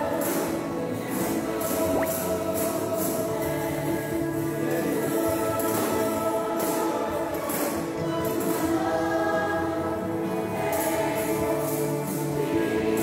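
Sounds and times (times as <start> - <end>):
choir singing gospel: 0.0 - 13.0.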